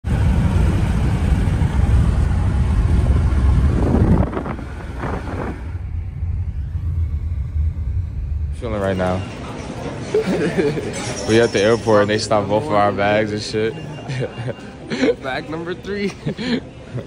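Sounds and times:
vehicle rumble: 0.0 - 11.6.

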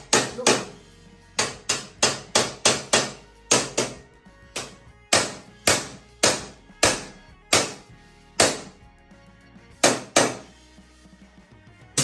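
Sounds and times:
hammer striking steel bar: 0.0 - 0.8, 1.4 - 4.0, 4.6 - 8.7, 9.8 - 10.4.

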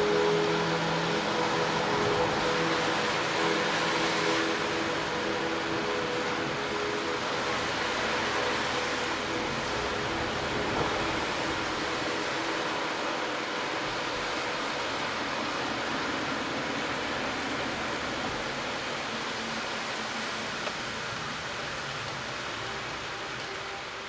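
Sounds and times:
tyre noise on wet road: 0.0 - 24.0.

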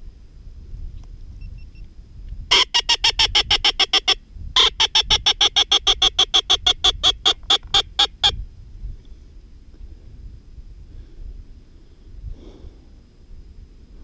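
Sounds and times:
duck call sharp notes: 2.5 - 8.4.

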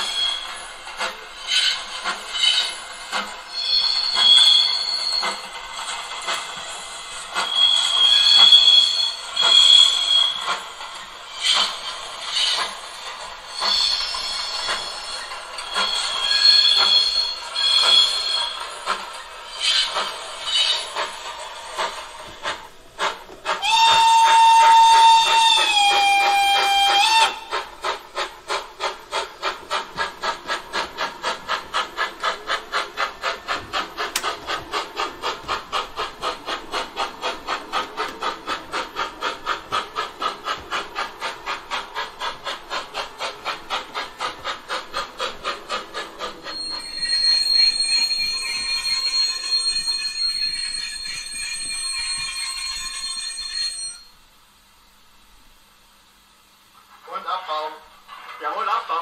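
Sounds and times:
steam exhaust chuffing: 0.0 - 52.3
steam whistle: 3.6 - 5.2, 7.4 - 10.5, 23.6 - 27.6.

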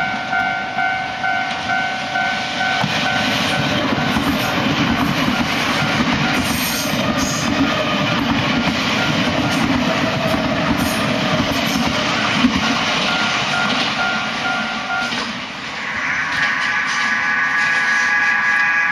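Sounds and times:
level crossing alarm: 0.0 - 4.6, 13.0 - 15.3
trains rumbling over rails: 0.0 - 18.9.

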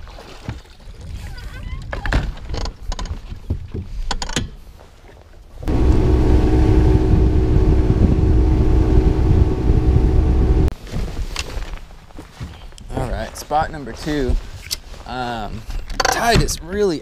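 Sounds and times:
outboard motor running: 5.7 - 10.7.

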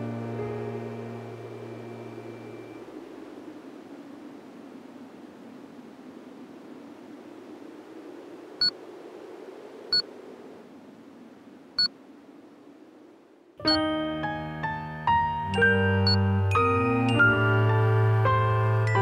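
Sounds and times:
keyboard music over bass: 0.0 - 2.6, 13.6 - 19.0
steady low background noise: 0.0 - 19.0.

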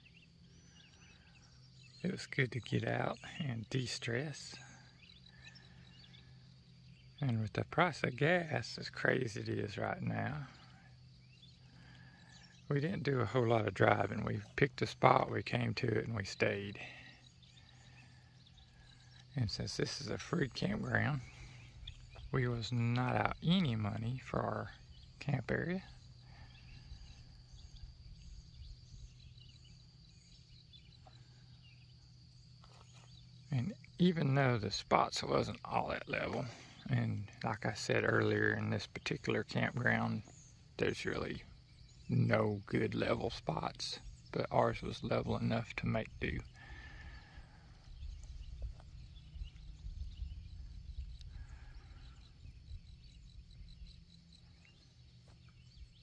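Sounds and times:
distant birds chirping: 0.0 - 56.0
high insect drone: 0.0 - 56.0
low steady hum: 0.0 - 56.0
wind rumble on microphone: 47.0 - 54.0.

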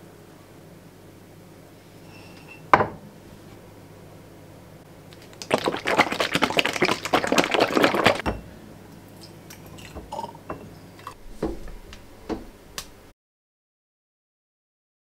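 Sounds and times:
drink sloshing in shaken bottle: 5.1 - 8.2
drink glugging into glass: 5.4 - 8.4, 9.6 - 11.2
small knocks: 11.4 - 13.0.

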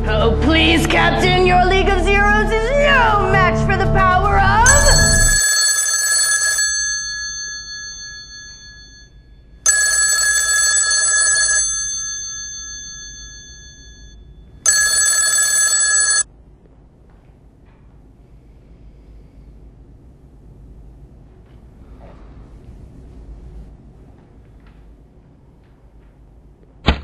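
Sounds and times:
telephone bell ringing: 4.7 - 16.3.

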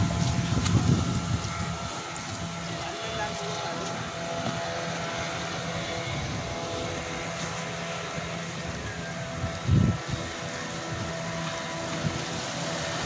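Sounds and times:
outboard motor droning: 0.0 - 13.0.

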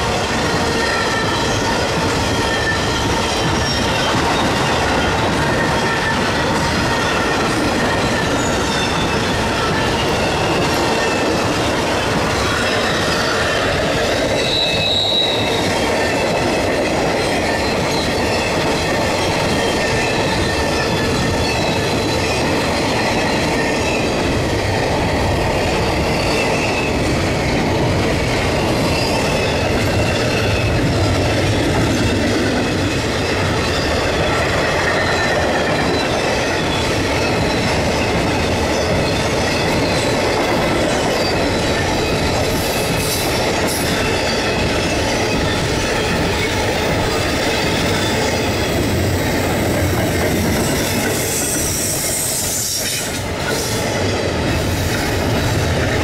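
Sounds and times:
train wheels rumbling on rail: 0.0 - 56.0
high wheel squeal: 0.6 - 11.4, 12.5 - 16.5, 25.7 - 27.7, 32.0 - 55.4.

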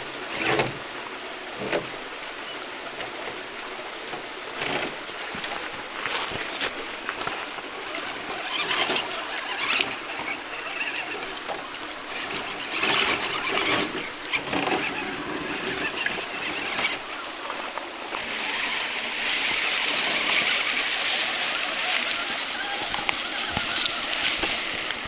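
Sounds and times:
high electric motor whine: 0.0 - 25.0
running water splashing: 17.2 - 25.0.

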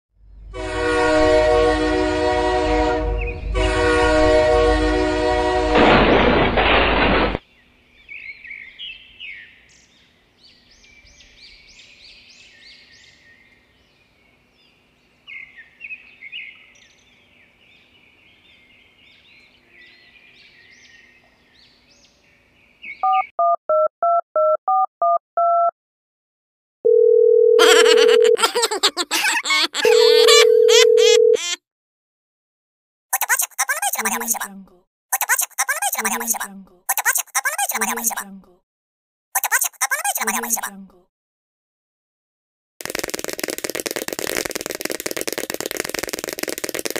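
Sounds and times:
loud horn blast: 0.5 - 6.0
telephone dial tone: 26.9 - 28.4, 29.8 - 31.4
loud clicking: 42.8 - 46.9.

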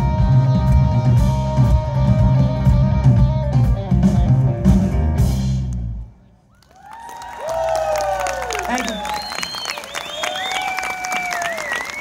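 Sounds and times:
rock band playing instrumental: 0.0 - 6.0.

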